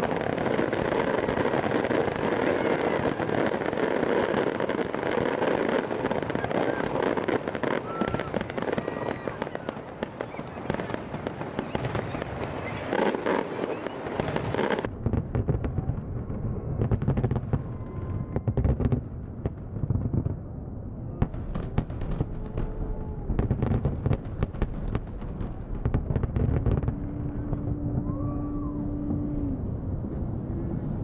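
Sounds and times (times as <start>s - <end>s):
deep fireworks booms: 0.0s - 31.0s
fireworks crackling and banging: 0.0s - 31.0s.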